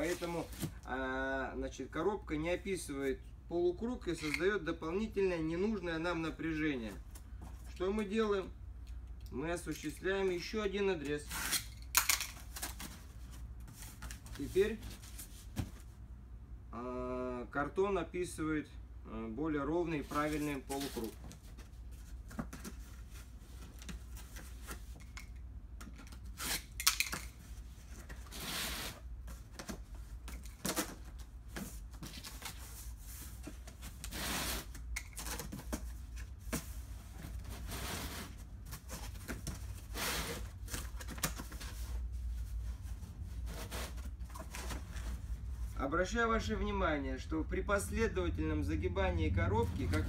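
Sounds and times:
cardboard rustling and crinkling: 0:00.0 - 0:00.9, 0:12.4 - 0:16.0, 0:20.0 - 0:25.1, 0:27.3 - 0:45.8.

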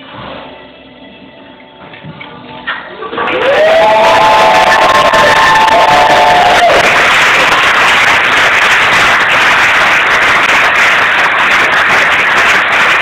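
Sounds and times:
crowd applauding: 0:03.1 - 0:13.0.

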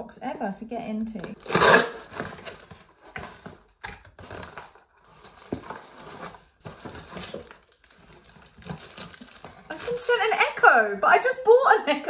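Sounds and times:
cardboard box rustling and knocking: 0:02.1 - 0:09.7
plastic bag pulled out: 0:04.2 - 0:10.6.

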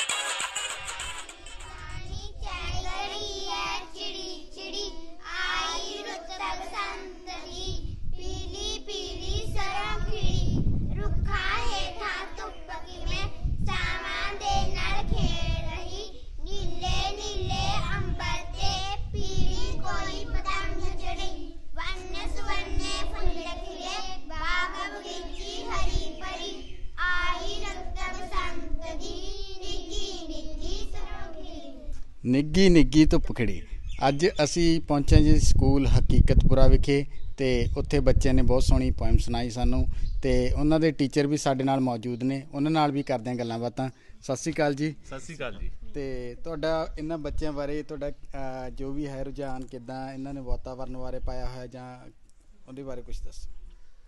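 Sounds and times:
children singing together: 0:01.3 - 0:32.0.

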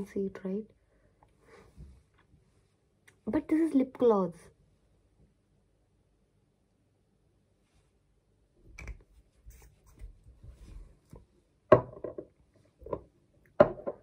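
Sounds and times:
bottles knocking on table: 0:11.7 - 0:12.2, 0:13.6 - 0:14.0.

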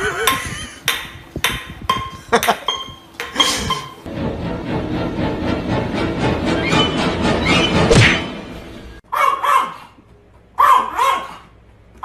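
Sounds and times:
background music: 0:04.1 - 0:09.0
animal barking calls: 0:09.1 - 0:10.0, 0:10.6 - 0:11.6.

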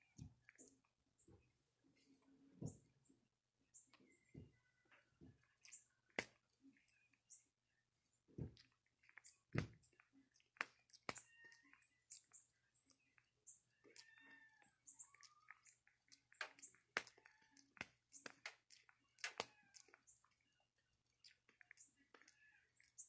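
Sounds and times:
monkey grooming hair: 0:08.5 - 0:23.0.

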